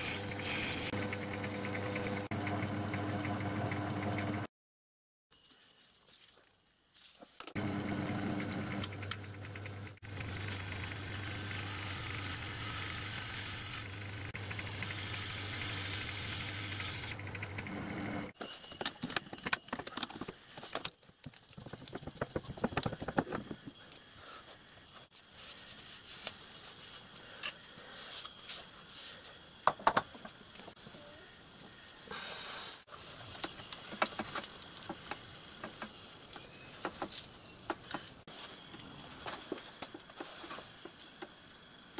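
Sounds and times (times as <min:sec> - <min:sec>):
lathe running: 0:07.6 - 0:18.3.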